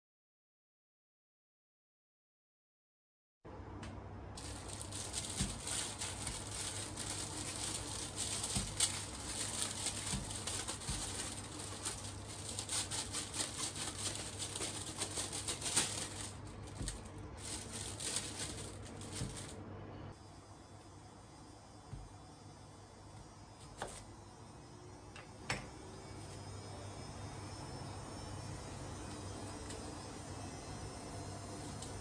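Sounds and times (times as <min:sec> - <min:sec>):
plastic wrapper crinkling: 0:04.4 - 0:19.6.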